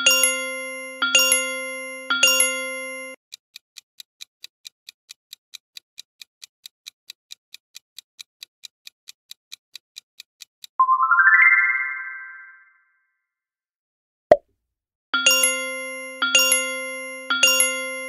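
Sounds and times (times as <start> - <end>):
countdown timer ticking: 10.8 - 12.3
low chime with bright overtones: 10.8 - 12.7.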